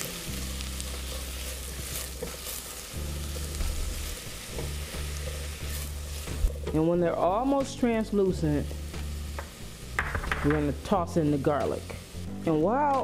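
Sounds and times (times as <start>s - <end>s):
spatula stirring in a pot: 0.0s - 7.1s
onions sizzling in oil: 0.0s - 13.0s.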